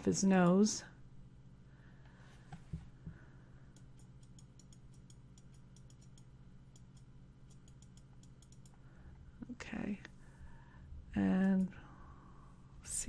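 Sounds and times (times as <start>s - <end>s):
low electrical hum: 0.0s - 13.0s
computer mouse clicking: 3.7s - 8.8s.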